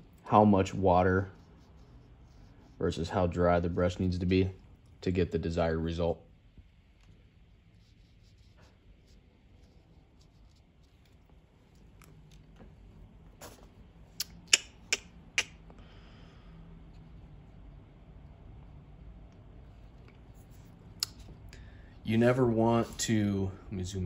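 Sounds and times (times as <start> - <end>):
brush on paper: 0.4 - 4.4, 7.4 - 12.4, 13.4 - 13.8, 22.1 - 23.2.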